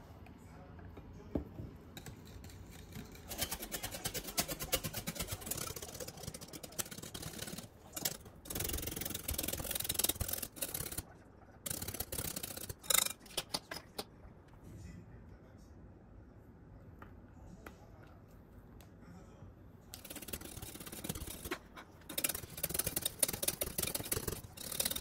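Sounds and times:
whisk beating cream in glass bowl: 2.0 - 13.4, 20.0 - 25.0.

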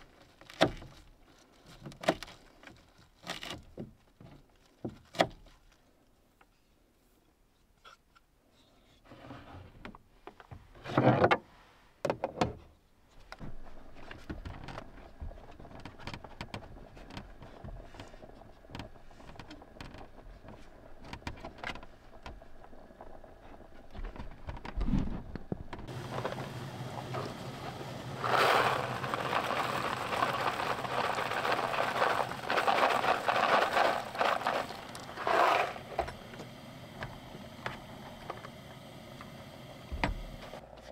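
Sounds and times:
steady low hiss: 25.0 - 40.7.

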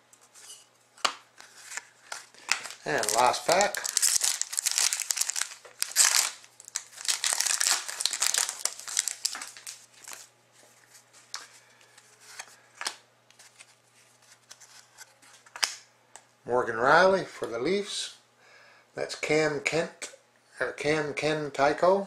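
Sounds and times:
cards rustling and clicking: 1.0 - 15.8
wrapper tearing and crinkling: 1.6 - 10.3.

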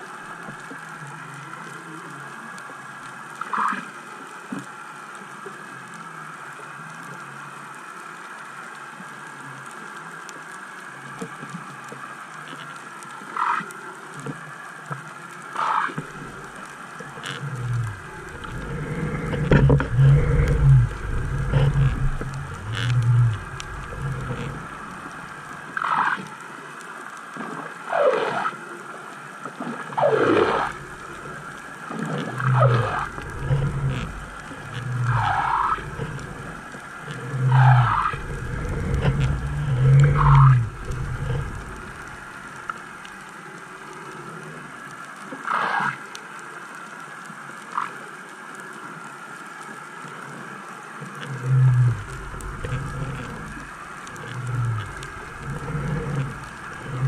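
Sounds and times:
low rumbling underwater pulses: 16.0 - 26.0, 30.0 - 43.3, 51.2 - 57.0.

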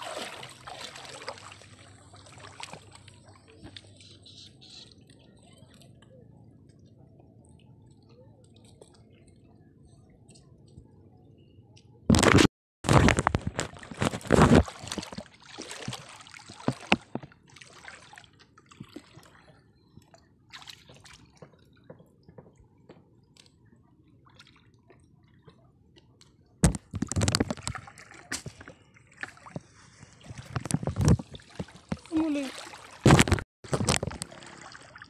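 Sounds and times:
water sloshing and dripping: 0.0 - 4.2, 13.2 - 35.0.

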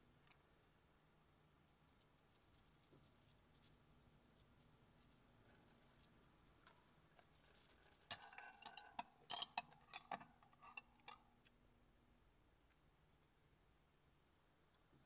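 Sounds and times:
tableware clinking: 8.1 - 11.2.

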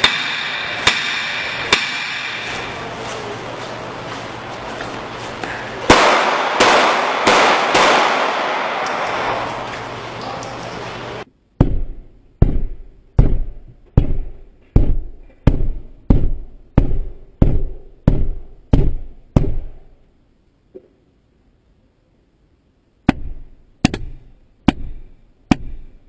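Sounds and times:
steady noise: 0.0 - 26.0.

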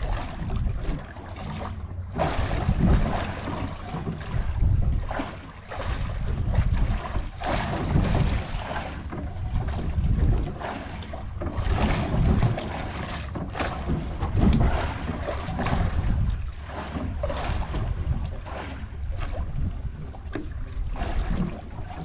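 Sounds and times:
water washing against boat: 0.0 - 22.0
wind gusting on microphone: 2.1 - 12.7, 13.9 - 22.0.

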